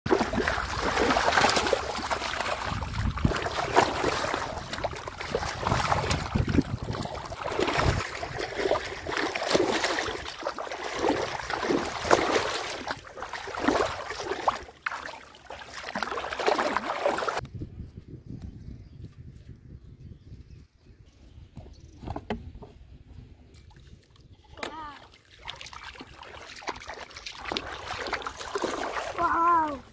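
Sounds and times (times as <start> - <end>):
shallow water splashing: 0.1 - 17.4, 24.7 - 29.9.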